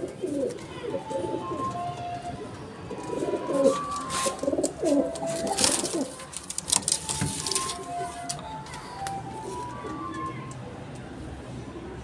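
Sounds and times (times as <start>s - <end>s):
pigeons cooing: 0.0s - 6.3s, 6.9s - 10.6s
clicks and rustles: 3.0s - 10.6s.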